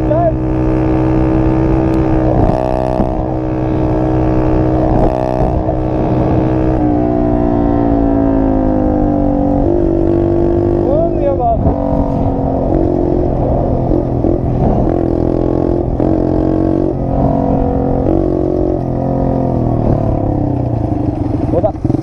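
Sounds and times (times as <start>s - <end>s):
dirt bike engine running: 0.0s - 22.0s
wind noise on microphone: 0.0s - 22.0s.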